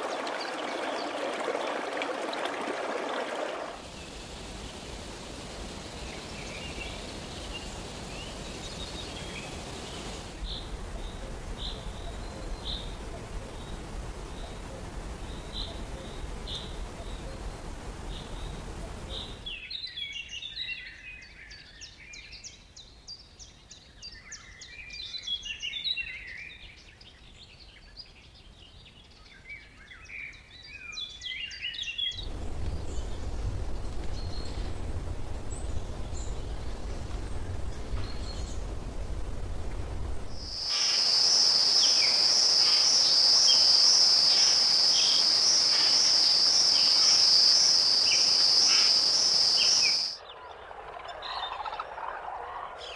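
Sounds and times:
low rumble: 32.2 - 40.6
high-pitched insect drone: 40.4 - 50.2.

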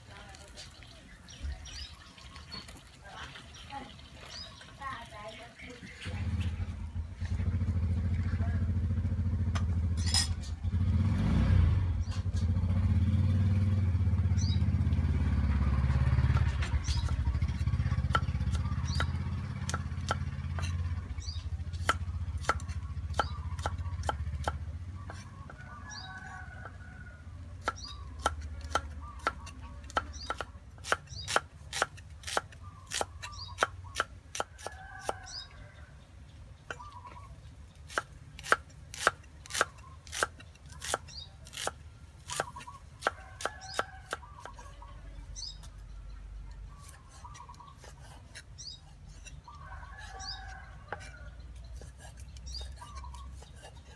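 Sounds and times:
vehicle engine rumbling: 0.0 - 53.9
cleaver chopping on wooden block: 18.1 - 20.8, 21.8 - 25.3, 27.6 - 35.2, 37.9 - 44.7.

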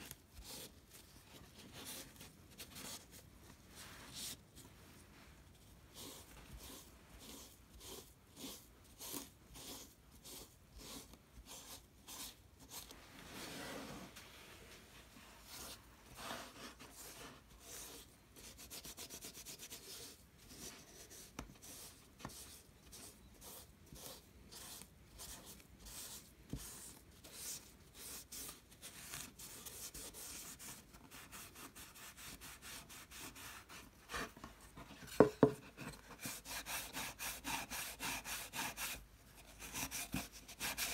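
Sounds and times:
sandpaper rasping on wood: 36.2 - 39.0, 39.6 - 40.9.

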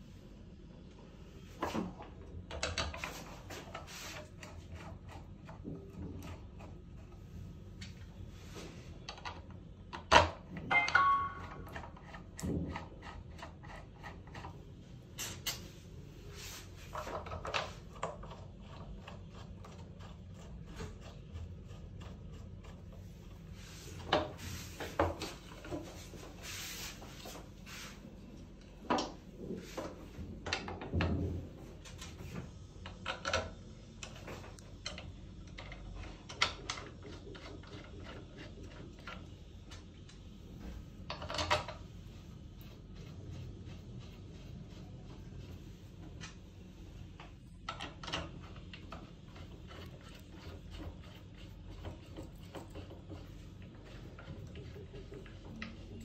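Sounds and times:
parts clicking and knocking: 29.8 - 40.2, 41.0 - 41.9, 47.0 - 56.0.

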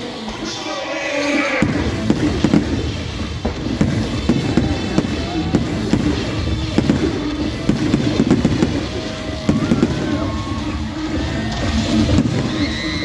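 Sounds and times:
fireworks bursting and crackling: 0.0 - 13.0.

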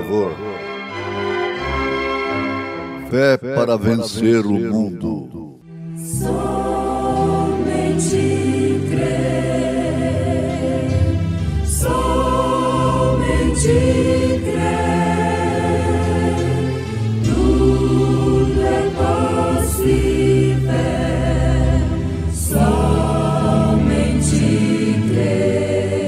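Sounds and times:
choir singing a hymn: 6.0 - 26.0.

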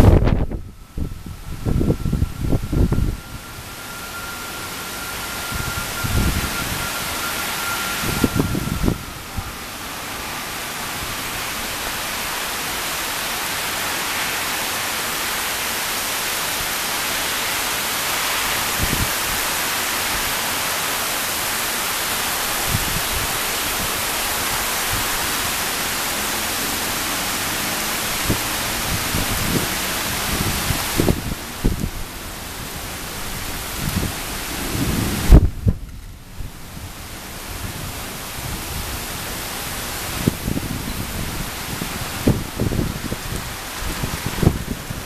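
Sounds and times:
heavy rain: 0.0 - 45.0.

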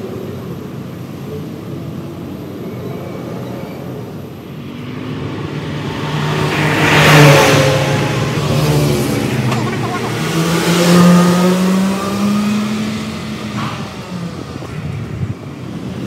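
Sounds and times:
traffic rumble: 0.0 - 16.0
vehicle passing close: 4.6 - 14.6.

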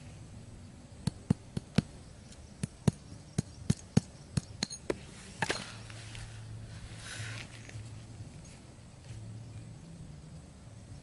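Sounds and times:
rustling scrape: 5.0 - 9.2.

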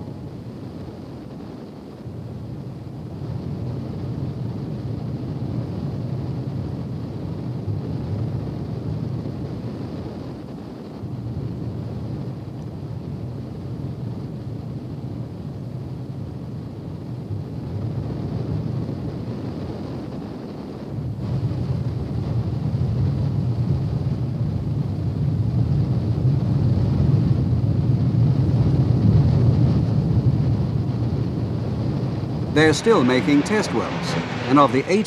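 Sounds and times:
gas flare rumbling: 27.6 - 35.0.

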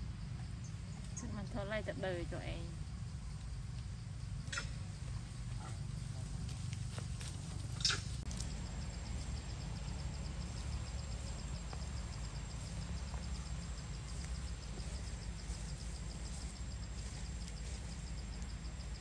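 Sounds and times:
insect calling in fast pulse: 4.4 - 4.9, 7.6 - 8.2.

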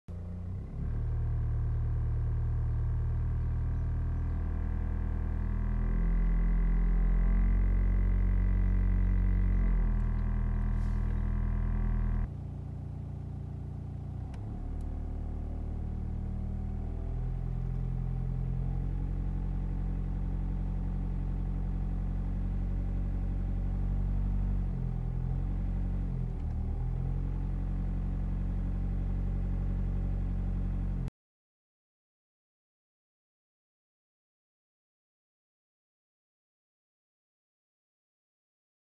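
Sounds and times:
car engine idling hum: 0.1 - 31.1
vibrating dashboard trim buzz: 4.1 - 12.3.

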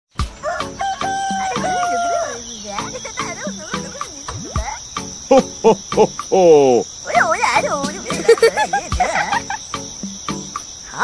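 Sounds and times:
crickets chirring: 0.1 - 11.0
rooster crowing: 0.4 - 2.6
wavering bird calls: 0.4 - 11.0.

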